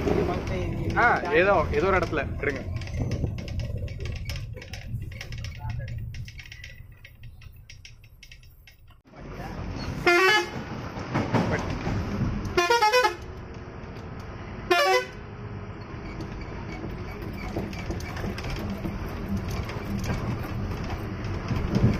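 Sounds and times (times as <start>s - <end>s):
engine and road noise: 0.0s - 21.9s
multi-note vehicle horn: 10.0s - 10.6s, 12.6s - 13.3s, 14.7s - 15.2s.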